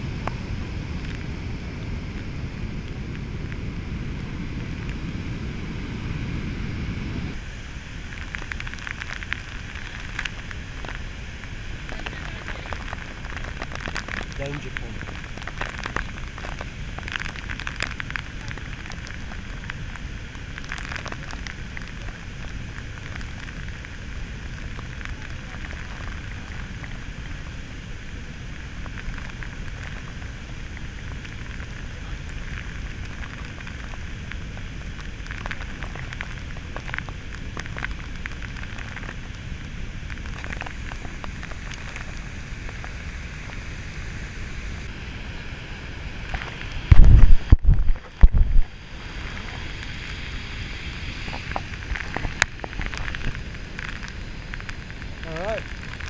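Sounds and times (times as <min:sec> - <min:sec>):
falling water rushing: 0:07.3 - 0:56.0
water drops clicking on camera: 0:46.3 - 0:48.7.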